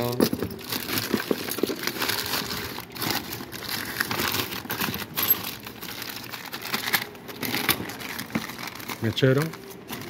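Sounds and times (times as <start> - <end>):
hands rummaging in cardboard box: 0.0 - 10.0
newspaper crinkling: 0.0 - 10.0.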